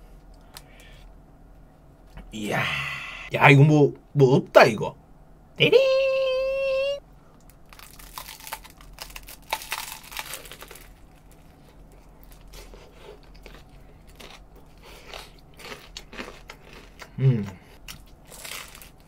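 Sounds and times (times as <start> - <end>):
crisp bread crunching: 7.5 - 17.1, 17.8 - 19.0
chewing with wet mouth sounds: 9.5 - 19.0.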